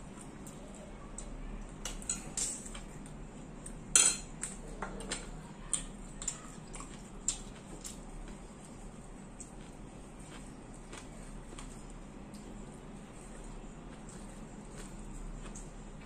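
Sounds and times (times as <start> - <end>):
forks clinking on plates: 3.9 - 4.4.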